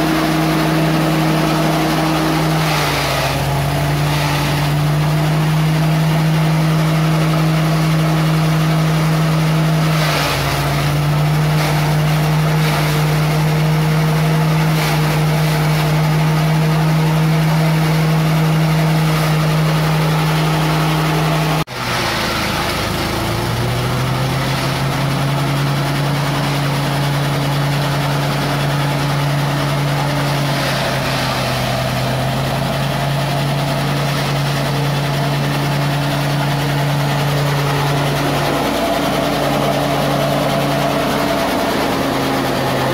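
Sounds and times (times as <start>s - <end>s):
small petrol engine humming: 0.0s - 42.9s.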